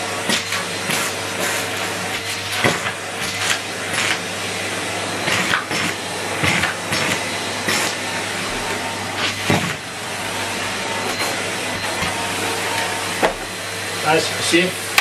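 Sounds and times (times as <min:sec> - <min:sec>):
vacuum cleaner running: 0:00.0 - 0:15.0.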